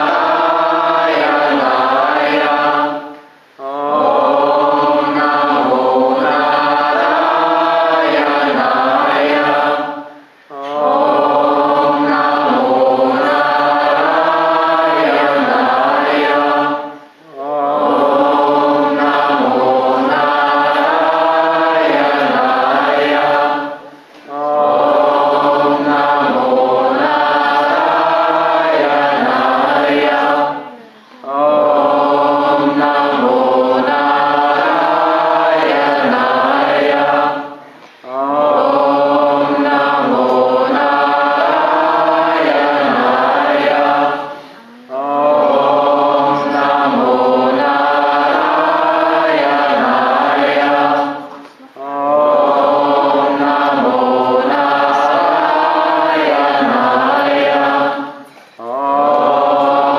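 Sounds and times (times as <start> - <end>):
group chanting in unison: 0.0 - 59.9.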